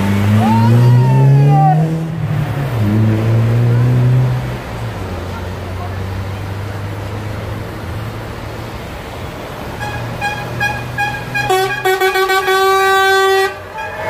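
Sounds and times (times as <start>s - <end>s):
truck horn toots and blasts: 9.8s - 14.0s.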